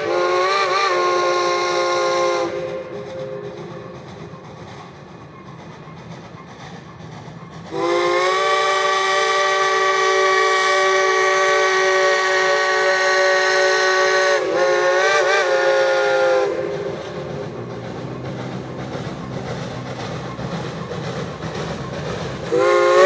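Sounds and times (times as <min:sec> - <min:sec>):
steam whistle chime: 0:00.0 - 0:03.5, 0:07.7 - 0:16.7, 0:22.5 - 0:23.0
locomotive running rumble: 0:00.0 - 0:23.0.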